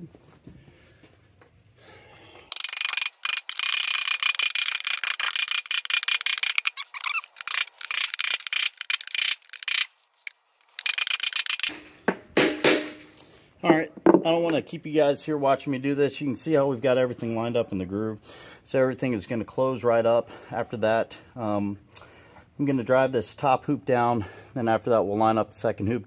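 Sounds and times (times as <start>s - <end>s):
rapid mechanical clicking: 2.5s - 9.9s.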